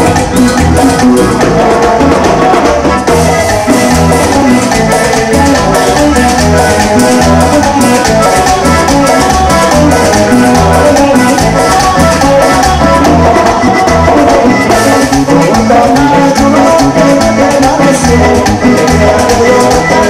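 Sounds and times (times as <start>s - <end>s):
latin dance music from a band: 0.0s - 20.0s.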